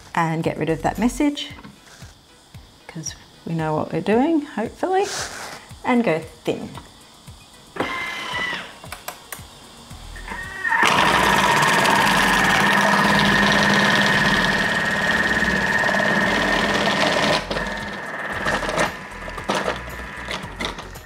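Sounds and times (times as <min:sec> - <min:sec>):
food processor motor whine: 0:07.8 - 0:08.8, 0:10.3 - 0:21.0.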